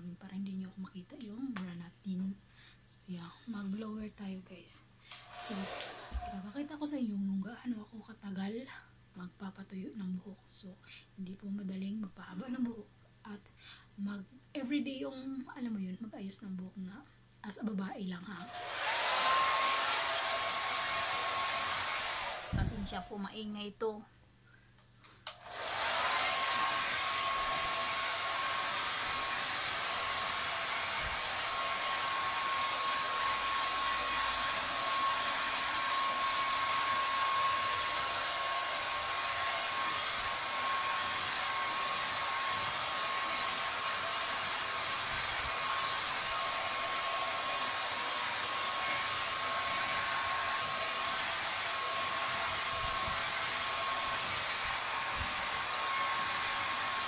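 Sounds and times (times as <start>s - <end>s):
hair dryer blowing: 5.1s - 6.7s, 18.4s - 23.3s, 25.2s - 57.0s.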